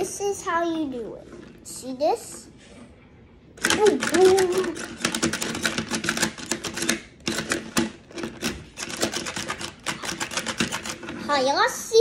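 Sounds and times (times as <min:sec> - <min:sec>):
plastic controllers clicking and clacking: 0:03.6 - 0:11.2.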